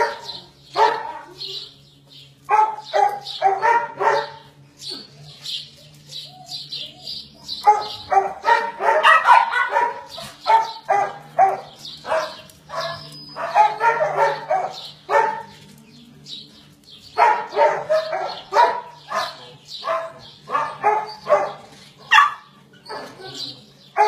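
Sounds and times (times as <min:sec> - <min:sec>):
dog barking: 0:00.0 - 0:01.4, 0:02.5 - 0:04.6, 0:07.6 - 0:15.6, 0:17.2 - 0:24.0
steady low hum: 0:00.0 - 0:24.0.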